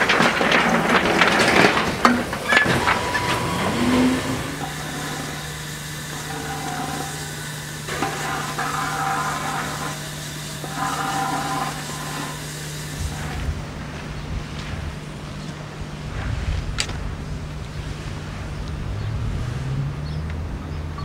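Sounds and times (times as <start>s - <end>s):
shovel scraping concrete: 0.0s - 5.5s
engine idling hum: 0.0s - 21.0s.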